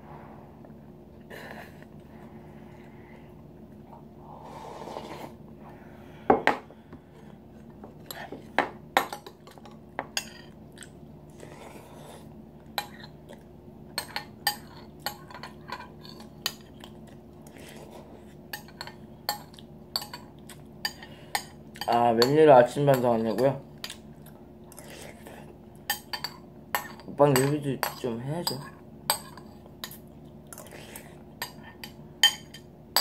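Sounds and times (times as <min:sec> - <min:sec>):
metal spoon clinking on ceramic bowl: 0:25.9 - 0:30.0.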